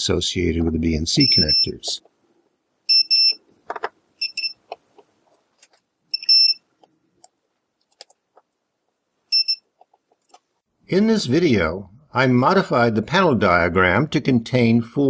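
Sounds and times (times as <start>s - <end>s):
multimeter short high beeps: 1.2s - 1.8s, 2.9s - 3.4s, 4.2s - 4.6s, 6.1s - 6.6s, 9.3s - 9.6s.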